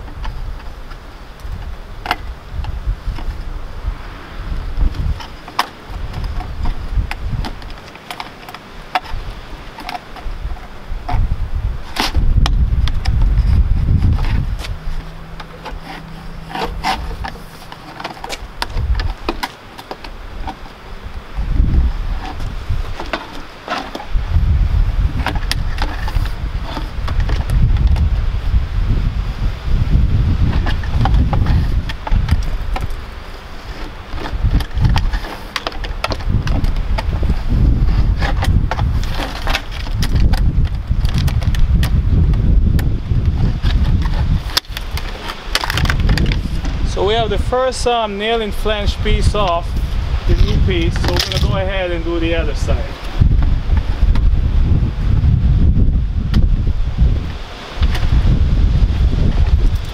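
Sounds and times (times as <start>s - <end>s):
wind rumbling on microphone: 0.0s - 59.9s
vinyl clicking and cracking: 5.0s - 24.3s, 30.4s - 49.6s, 50.3s - 54.3s
knife ripping vinyl: 11.8s - 20.7s.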